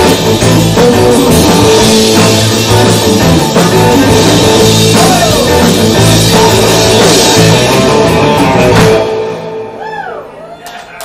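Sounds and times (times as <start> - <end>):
rock band playing loudly: 0.0 - 10.4.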